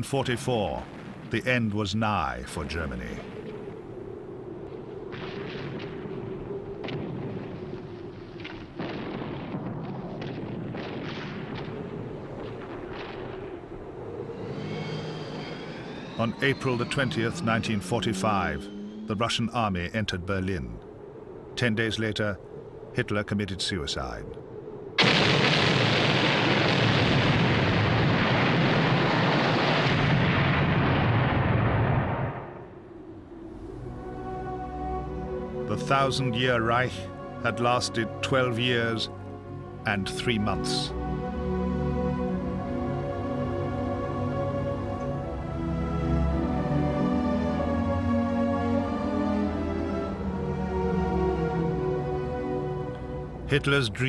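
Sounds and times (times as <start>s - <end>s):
steady battle rumble: 0.0s - 4.4s, 15.6s - 24.4s, 33.5s - 41.0s, 49.9s - 54.0s
large explosion rumble: 25.0s - 32.6s.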